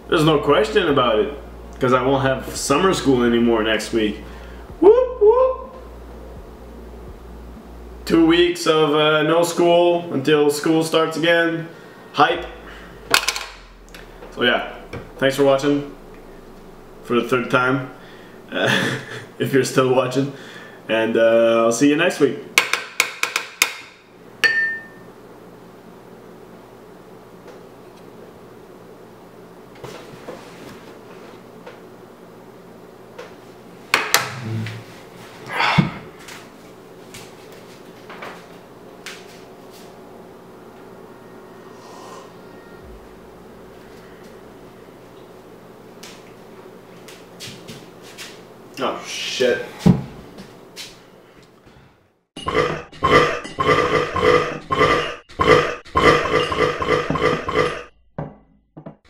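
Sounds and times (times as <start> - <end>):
harsh buzzing pulses: 0.0 - 10.2, 10.9 - 20.8, 40.2 - 45.9, 52.4 - 58.0
chair scraping: 34.2 - 35.1.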